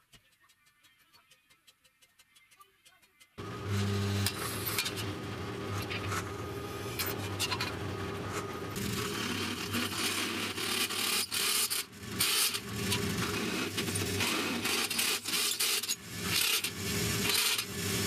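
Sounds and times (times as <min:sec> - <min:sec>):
low steady hum: 0:03.4 - 0:10.0
metal scraping and rasping: 0:03.4 - 0:18.0.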